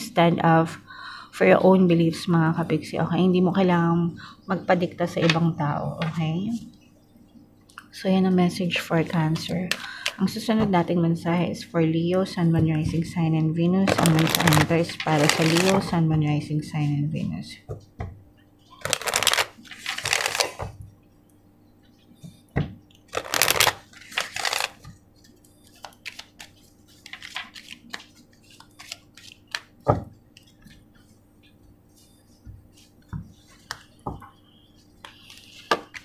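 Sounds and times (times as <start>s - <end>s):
cards shuffling: 13.9s - 15.8s, 18.8s - 20.6s, 23.1s - 29.7s
cards tapping and clicking: 18.8s - 20.7s, 23.2s - 25.0s.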